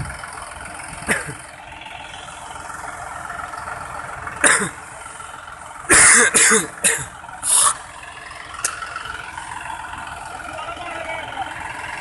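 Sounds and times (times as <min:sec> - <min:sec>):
tractor engine running: 0:00.0 - 0:12.0
person coughing: 0:04.4 - 0:04.8, 0:05.9 - 0:07.1.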